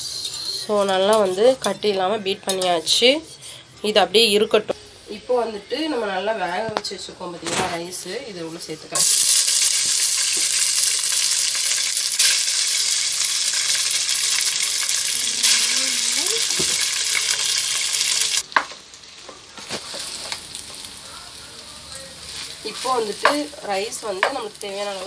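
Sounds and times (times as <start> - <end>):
oil sizzling in a pan: 7.9 - 25.0.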